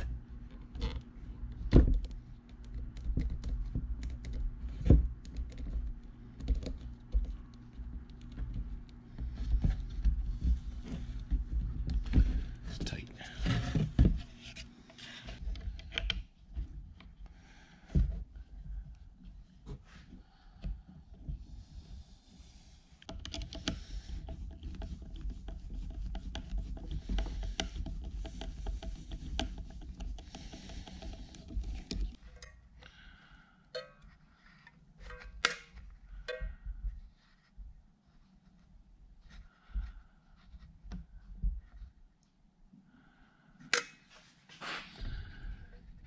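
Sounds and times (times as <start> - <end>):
plastic parts clicking and knocking: 0.5 - 10.1, 23.0 - 32.6.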